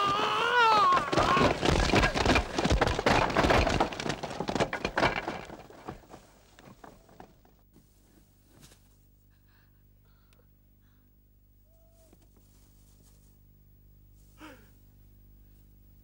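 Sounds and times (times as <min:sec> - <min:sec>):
wood and thatch crashing down: 0:00.0 - 0:07.5
wooden poles cracking and snapping: 0:00.0 - 0:07.6.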